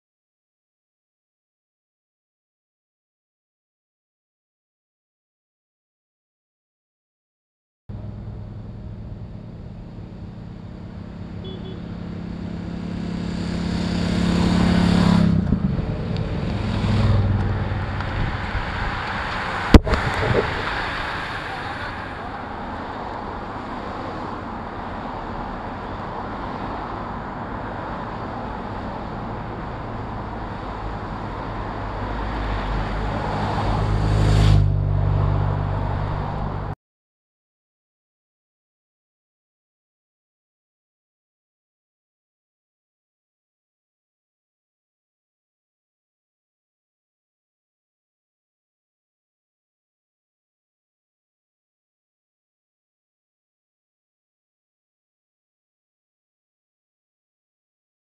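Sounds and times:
vehicles passing on highway: 7.9s - 36.8s.

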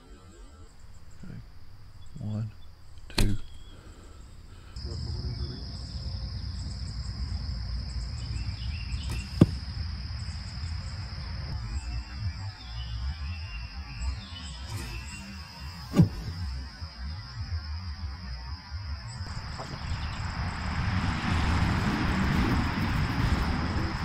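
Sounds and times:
high insect buzz: 0.0s - 24.0s
distant arrow impact snap: 9.0s - 9.8s, 15.9s - 16.4s
bowstring snap: 9.1s - 9.6s.

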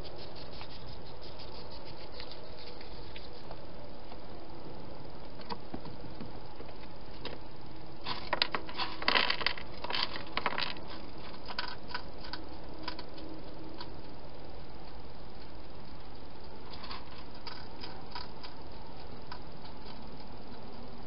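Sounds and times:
steady hiss: 0.0s - 9.0s, 10.8s - 21.0s
hedgehog crunching food: 16.7s - 20.6s.

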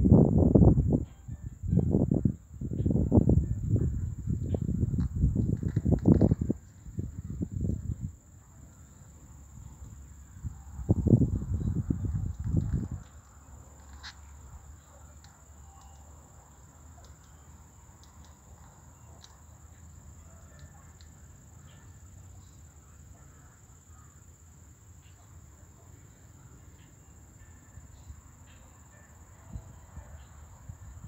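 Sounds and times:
low rumbling on microphone: 0.0s - 8.6s, 9.4s - 13.3s.

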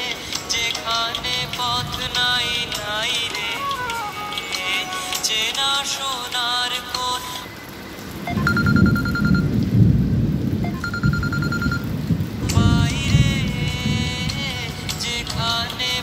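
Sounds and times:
song with singing: 0.0s - 7.7s, 12.4s - 16.0s
thunder rumbling: 8.2s - 16.0s.

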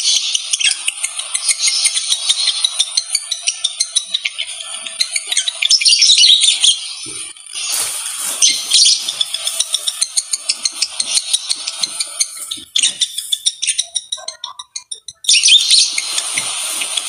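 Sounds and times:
lovebird chirping: 0.0s - 17.0s.

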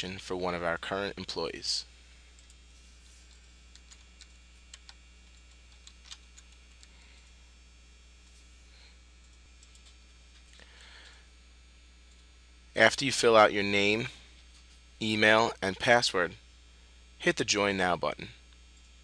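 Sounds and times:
low steady hum: 0.0s - 19.0s
computer keystrokes: 3.3s - 6.9s, 9.2s - 10.0s.

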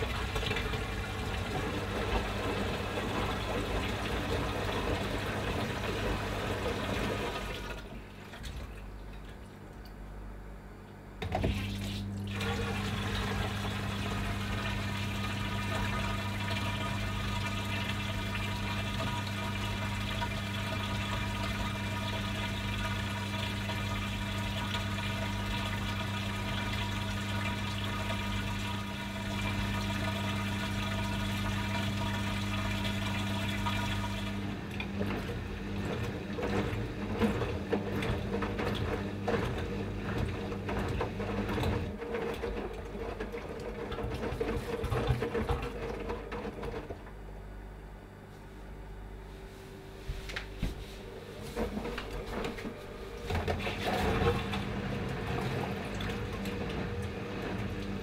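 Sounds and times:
water running: 0.0s - 10.0s, 11.2s - 46.9s, 50.1s - 58.0s
washing machine pump humming: 0.0s - 58.0s
laundry tumbling in drum: 35.0s - 47.0s.

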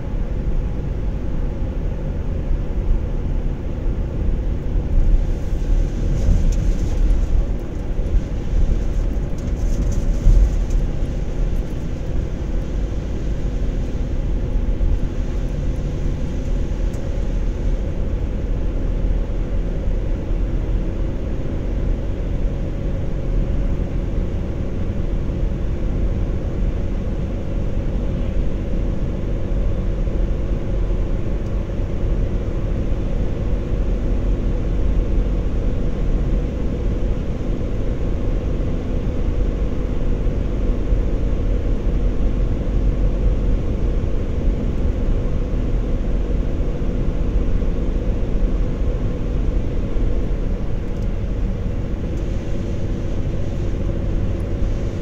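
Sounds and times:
car engine cruising: 0.0s - 55.0s.

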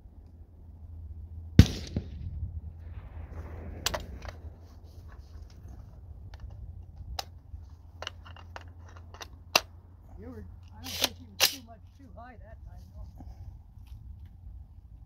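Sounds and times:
rifle shot with echo: 1.6s - 4.9s, 10.9s - 11.7s.

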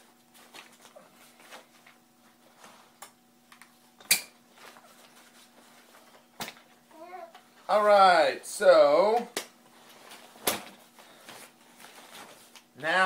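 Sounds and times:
fabric and plastic poles handled: 9.7s - 12.7s.

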